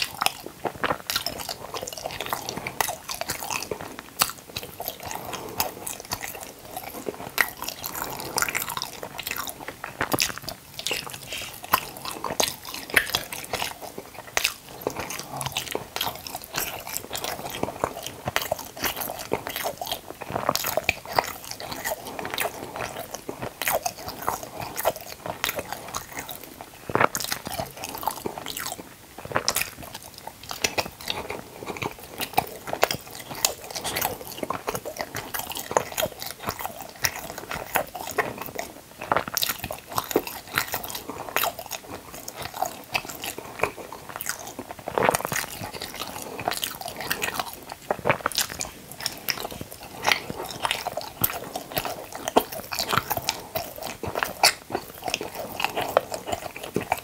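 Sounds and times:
chewing and biting soft food: 0.0 - 57.0
wet mouth clicks and smacks: 29.2 - 57.0.

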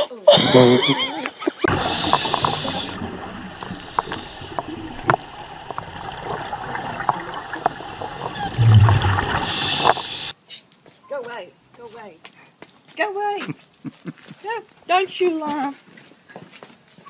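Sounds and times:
underwater hiss: 1.7 - 4.4, 6.8 - 10.3
regulator bubbles gurgling: 1.7 - 10.3.

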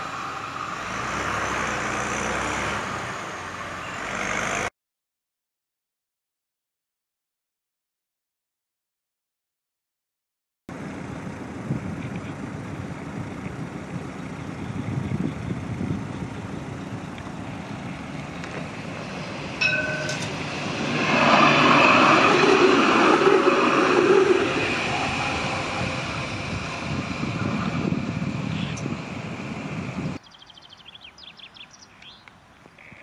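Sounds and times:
tram passing on track: 0.0 - 4.7, 10.7 - 30.2
short ringing tone: 19.6 - 20.4.

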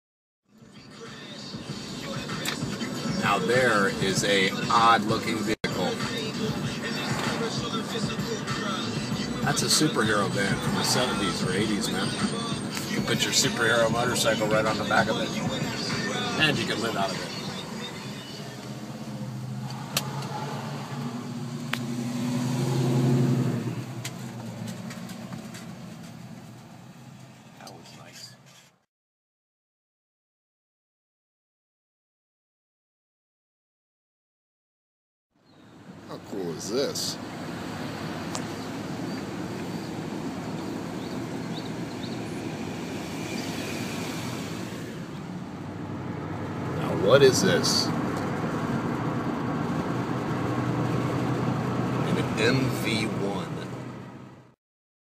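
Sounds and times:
car engine driving past: 15.4 - 27.8, 37.0 - 54.3.

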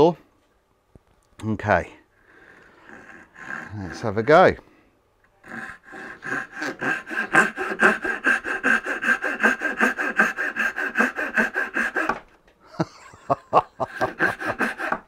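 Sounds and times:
pull saw cutting wood: 5.5 - 12.4, 13.9 - 15.0.

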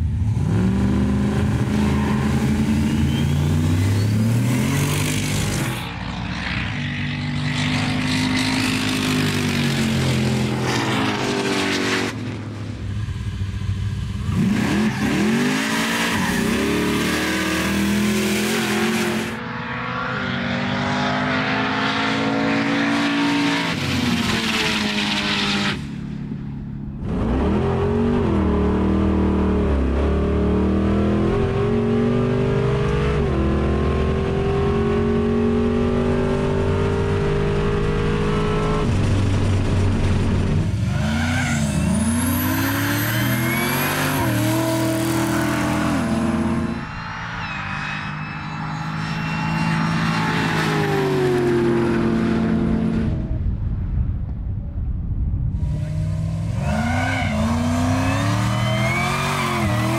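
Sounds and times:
car engine accelerating hard: 27.0 - 47.2, 55.6 - 59.9.

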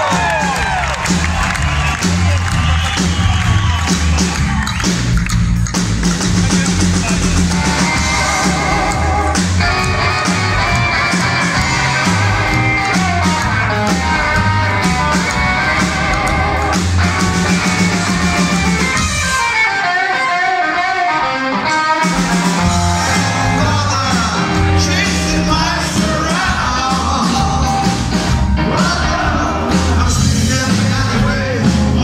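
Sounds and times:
upright double bass: 0.0 - 19.2, 22.1 - 32.0
drums: 0.0 - 32.0.

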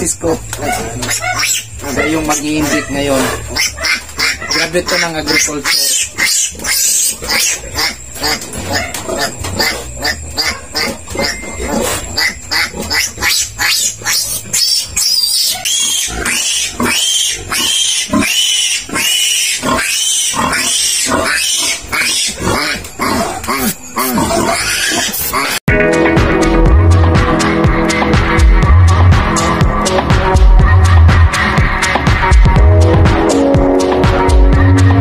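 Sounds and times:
piglet squealing: 0.6 - 25.6.

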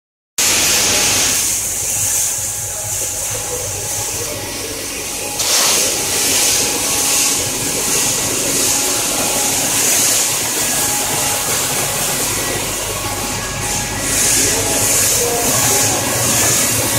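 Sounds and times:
strong hiss: 0.4 - 4.1
conveyors and sorting machinery: 0.4 - 16.9.

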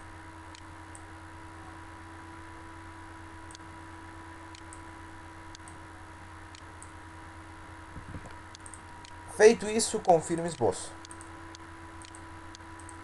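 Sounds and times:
low electrical hum and hiss: 0.0 - 13.0
computer mouse clicks: 4.5 - 4.8, 8.0 - 9.2, 10.0 - 13.0.

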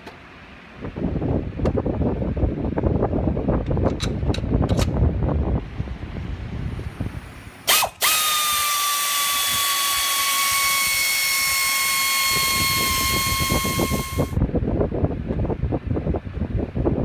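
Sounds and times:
air ratchet whining: 7.6 - 14.4.

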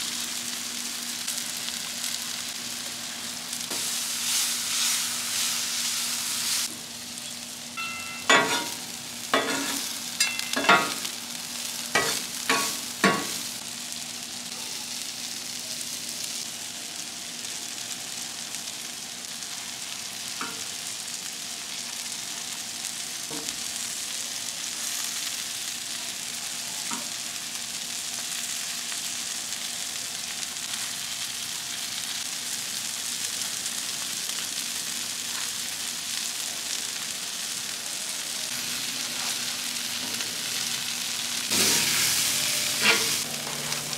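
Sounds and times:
food sizzling on griddle: 0.0 - 43.9
spatula clanking on griddle: 7.8 - 11.2, 11.9 - 13.5, 20.4 - 20.7, 42.7 - 43.9.

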